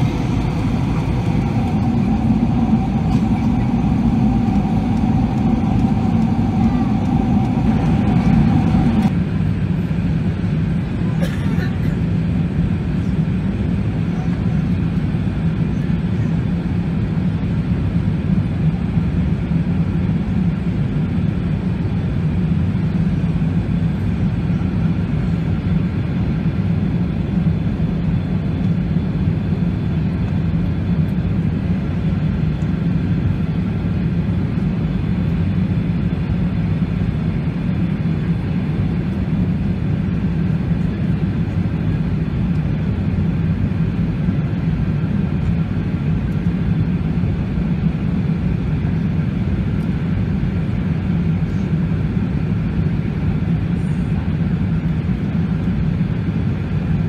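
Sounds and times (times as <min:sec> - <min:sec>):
aircraft cabin drone: 0:00.0 - 0:57.0.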